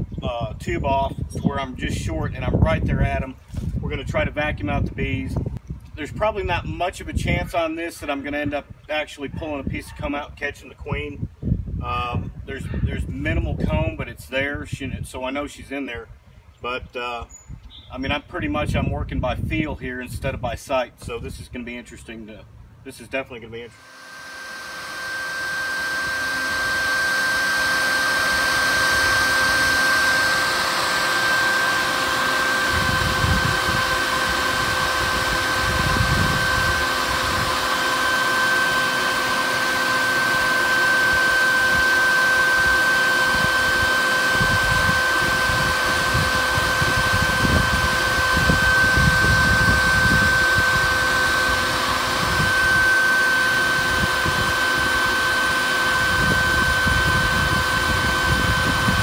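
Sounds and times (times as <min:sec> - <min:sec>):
bee vacuum whining: 0:23.7 - 0:59.0.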